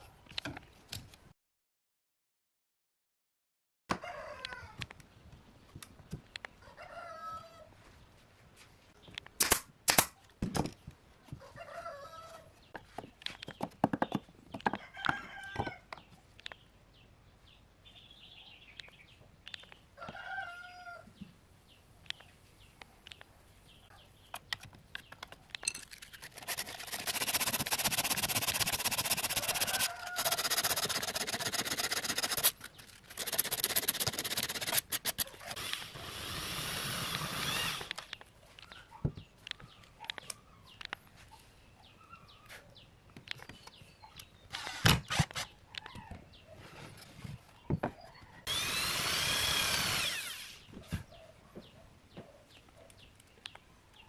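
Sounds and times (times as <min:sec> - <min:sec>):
rooster crowing: 0:03.9 - 0:04.8, 0:06.7 - 0:07.7, 0:11.5 - 0:12.4, 0:29.4 - 0:30.4
chickens calling: 0:29.2 - 0:30.7.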